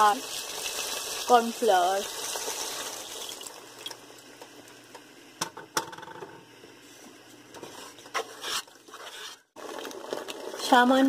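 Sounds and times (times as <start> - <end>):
liquid hissing in hot pan: 0.0 - 3.5.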